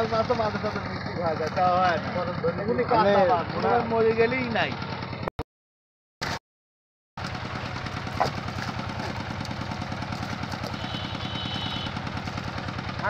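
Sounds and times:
small engine chugging: 0.0s - 5.2s, 7.2s - 13.0s
short call: 10.6s - 12.0s.

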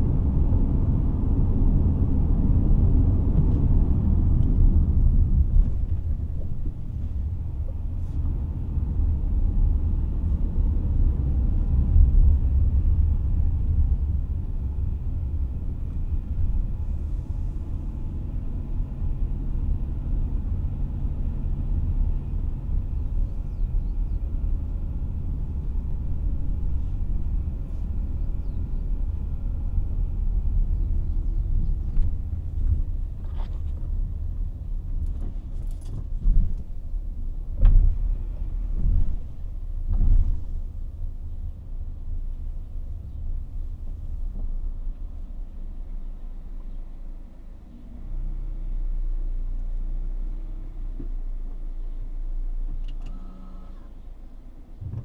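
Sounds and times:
car driving at low speed: 0.0s - 55.0s
heavy thumps from road bumps: 31.5s - 41.0s, 54.8s - 55.0s.

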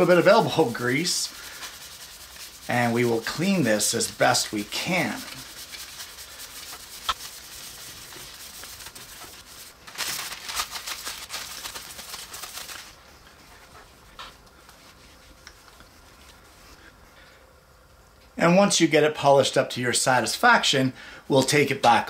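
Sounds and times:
paper towel rubbing metal: 0.0s - 17.0s
cloth wiping: 0.0s - 17.2s.

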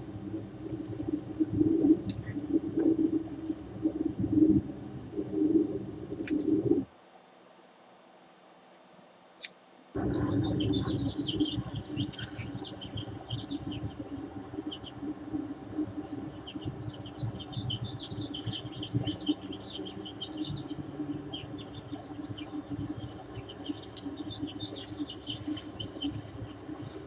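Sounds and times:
low steady hum: 0.0s - 27.0s
small birds chirping: 9.4s - 27.0s.

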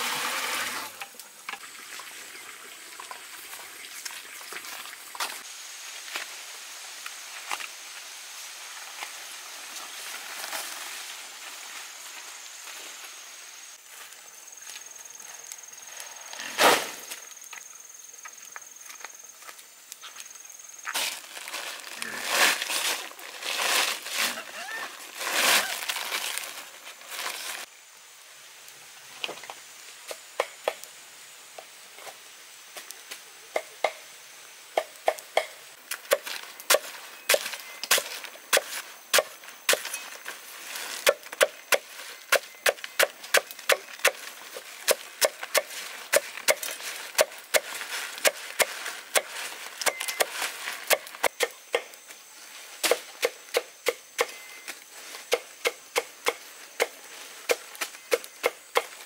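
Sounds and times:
plastic sack rustling: 20.9s - 27.7s
machete chopping stems on wood: 44.8s - 50.3s, 52.8s - 54.4s.

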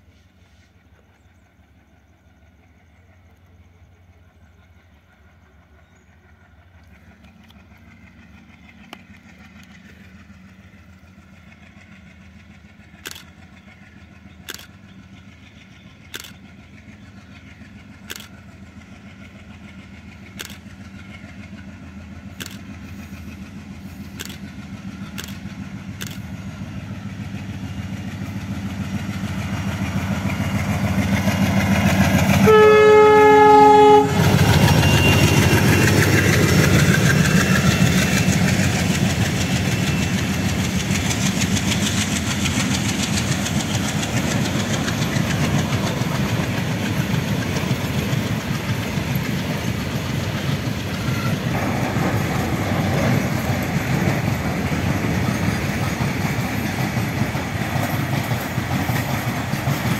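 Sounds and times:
diesel locomotive engine drone: 0.0s - 59.9s
sharp clicks: 13.0s - 13.4s, 14.4s - 14.8s, 16.1s - 16.4s, 18.0s - 18.4s, 20.3s - 20.8s, 22.4s - 22.7s, 24.1s - 26.3s.

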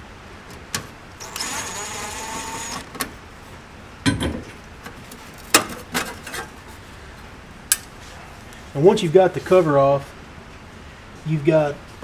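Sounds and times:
impact driver running: 1.2s - 2.9s.

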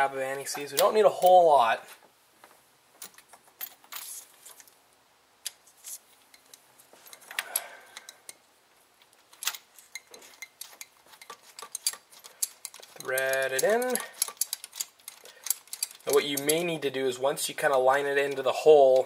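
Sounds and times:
metal hand tools clinking: 5.9s - 8.4s, 9.3s - 16.9s.

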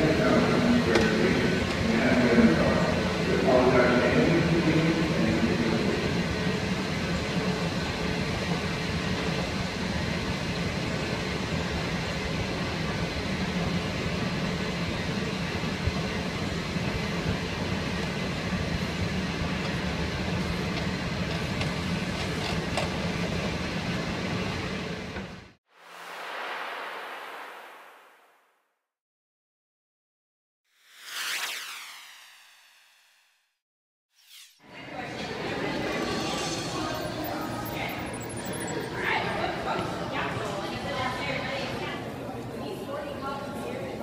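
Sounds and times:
escalator humming and rattling: 0.0s - 25.4s.

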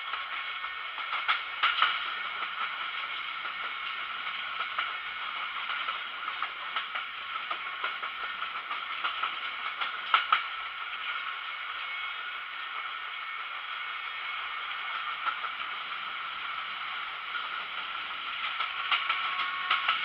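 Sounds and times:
train wheels rattling on rails: 0.0s - 20.0s
train wheel clicks and knocks: 1.0s - 10.6s, 17.4s - 20.0s.

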